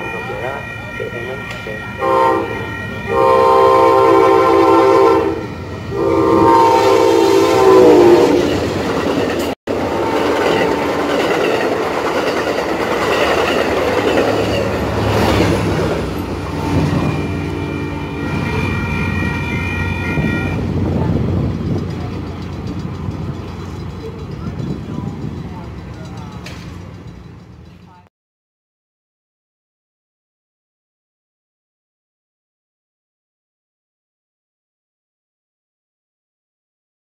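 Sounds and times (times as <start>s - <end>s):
train horn blasts: 0.0s - 8.5s, 9.8s - 11.2s, 16.5s - 20.7s
crossing warning bell ringing: 0.0s - 20.8s, 21.4s - 28.1s
train wheels rumbling past: 0.0s - 28.1s.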